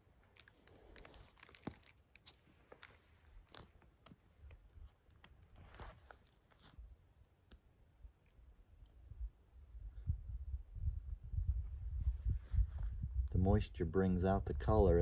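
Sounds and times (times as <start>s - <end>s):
faint clicks and crackles: 0.2s - 6.8s.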